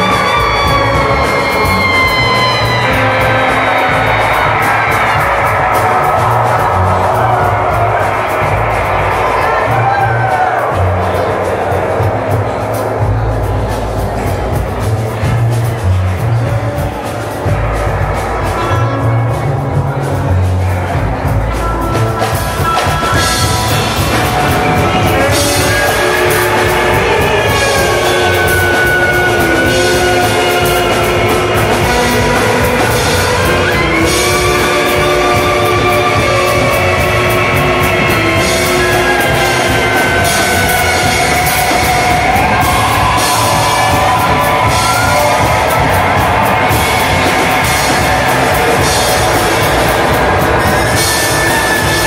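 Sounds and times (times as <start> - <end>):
clarinet: 0.0 - 14.6, 15.3 - 52.0
drum kit: 0.0 - 52.0
guitars: 0.0 - 52.0
trumpet: 0.0 - 52.0
upright bass: 0.0 - 52.0
lap steel guitar sliding notes: 21.4 - 52.0.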